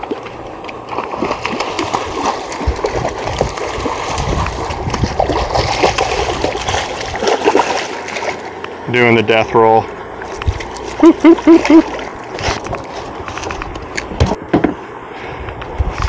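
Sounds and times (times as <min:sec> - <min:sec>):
fish splashing in water: 0:00.0 - 0:08.6.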